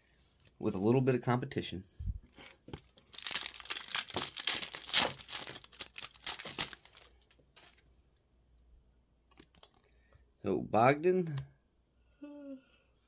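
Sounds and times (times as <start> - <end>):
plastic wrapper crinkling: 2.4 - 7.8, 9.3 - 10.0.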